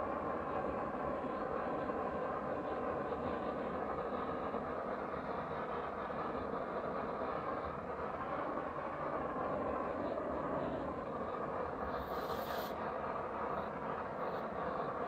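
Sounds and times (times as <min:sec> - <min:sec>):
blowtorch hissing: 0:11.8 - 0:13.0.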